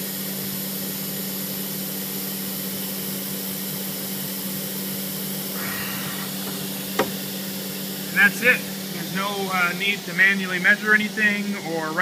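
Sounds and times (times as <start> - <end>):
cnc router humming: 5.4 - 9.6.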